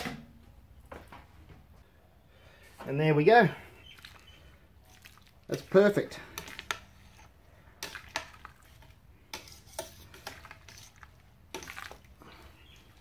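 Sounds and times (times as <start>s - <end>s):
paddle stirring wet grain mash: 2.5s - 13.0s
paddle scraping metal pot: 5.5s - 12.0s.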